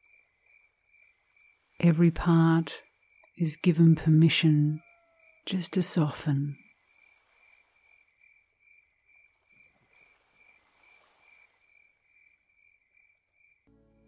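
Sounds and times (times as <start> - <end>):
cricket chirping: 0.0 - 1.9, 2.5 - 13.9
soft sustained music: 13.7 - 14.0.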